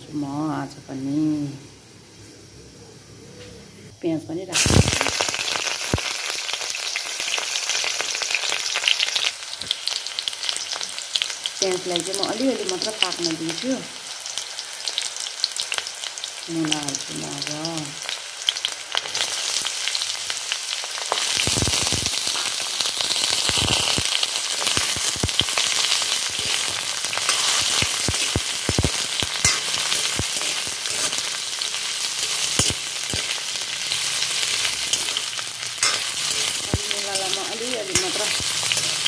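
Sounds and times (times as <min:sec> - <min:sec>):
radish sizzling in hot oil: 0:04.5 - 0:39.0
metal spoon scraping pan: 0:26.3 - 0:39.0.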